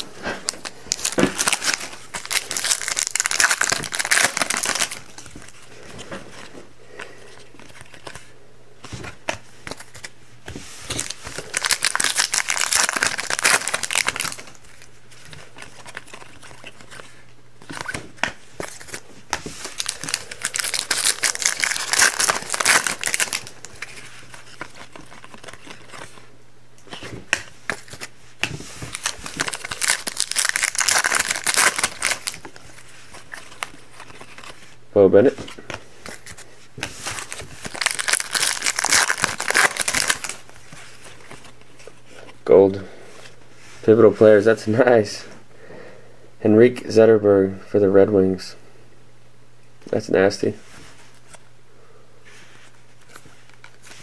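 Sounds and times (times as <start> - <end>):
foil wrappers tearing and crinkling: 0.0 - 5.5, 10.8 - 18.0, 19.6 - 26.3, 28.8 - 34.7, 36.1 - 41.6
cards rustling and handled: 0.0 - 42.4, 52.4 - 54.0.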